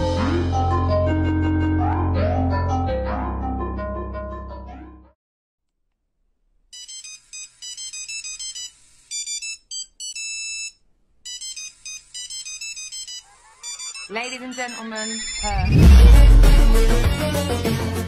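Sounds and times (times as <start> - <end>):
electronic ringtone melody: 6.8 - 16.2.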